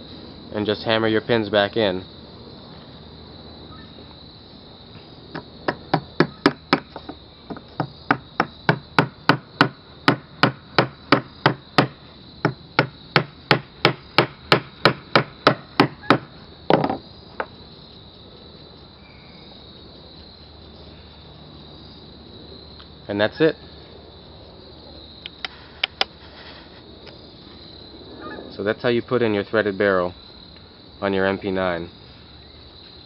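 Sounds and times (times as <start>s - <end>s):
double knock: 5.7s - 17.0s.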